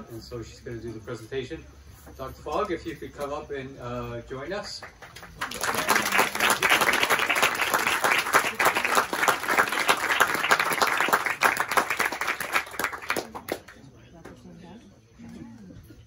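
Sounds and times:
audience applauding: 4.9s - 13.8s.

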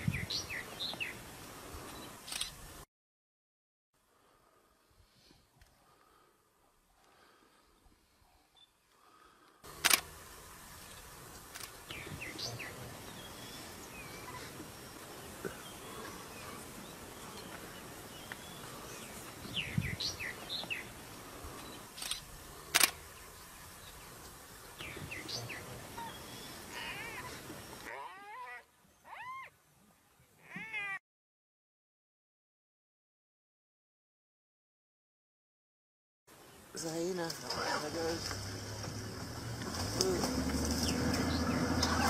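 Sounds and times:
birds chirping: 0.0s - 1.2s, 10.5s - 30.9s, 36.4s - 42.0s
steady background hiss: 4.2s - 27.9s.

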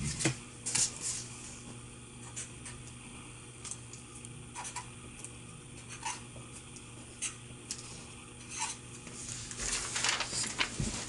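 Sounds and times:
paper rustling: 9.1s - 11.0s.

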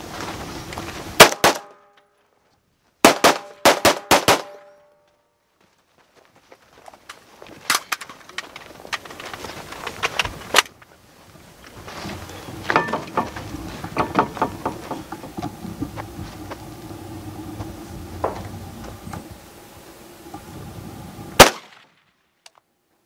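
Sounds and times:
steady low hum: 0.0s - 5.1s, 7.3s - 23.0s
sharp cracks: 1.2s - 2.1s, 3.0s - 5.0s, 21.4s - 22.6s
gear clicks and rattles: 6.2s - 19.4s.

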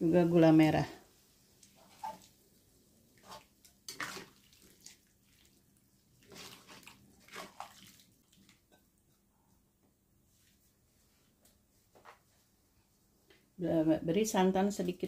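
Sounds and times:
spatula sloshing broth in a wok: 1.4s - 9.3s.

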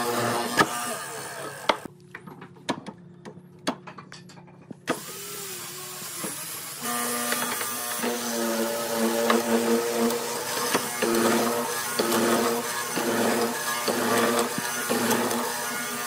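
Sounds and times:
mortising machine motor running: 4.9s - 16.0s
bit boring into wood: 6.0s - 16.0s.

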